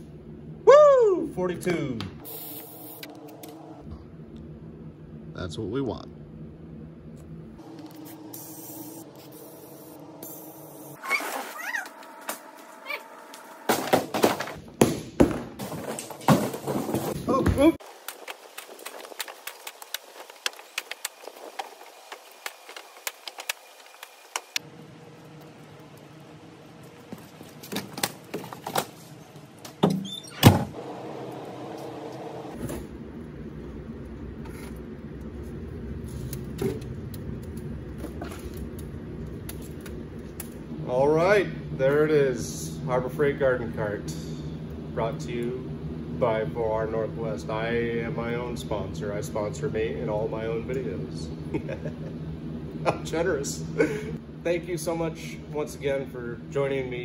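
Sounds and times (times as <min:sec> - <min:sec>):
compressed air hissing: 0:02.2 - 0:03.1, 0:07.9 - 0:11.0
steady low rumble: 0:03.1 - 0:11.0.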